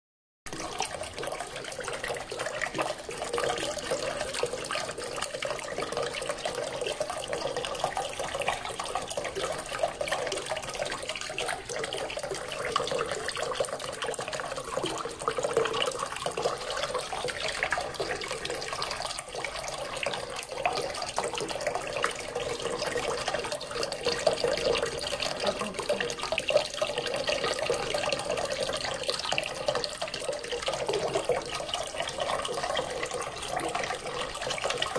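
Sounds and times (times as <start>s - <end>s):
fountain water splashing: 0.5s - 34.9s.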